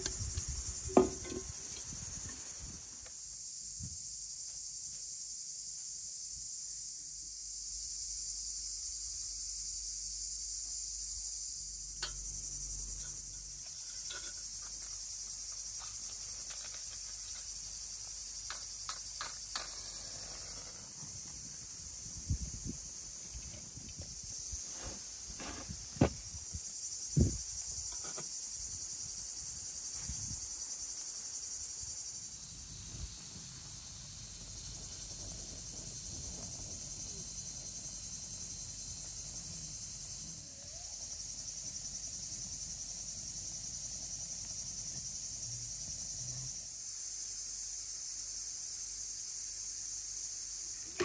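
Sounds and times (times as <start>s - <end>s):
high-pitched insect chorus: 0.0s - 51.0s
sharp knocks: 0.9s - 1.6s.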